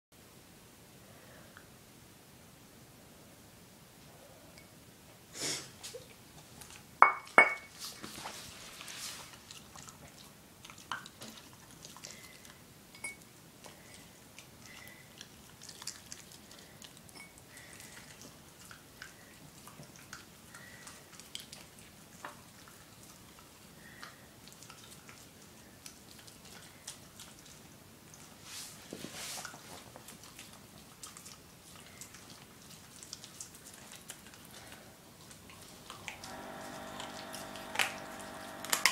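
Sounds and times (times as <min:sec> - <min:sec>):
ceramic bowl clinking on floor: 0:07.0 - 0:07.8, 0:13.0 - 0:13.2
dog chewing and crunching bone: 0:08.0 - 0:38.9.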